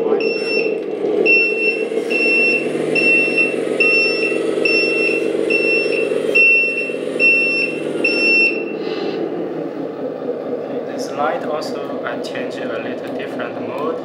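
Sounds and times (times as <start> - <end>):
simulated truck engine running: 0.0 - 14.0
electronic beep: 0.2 - 8.8.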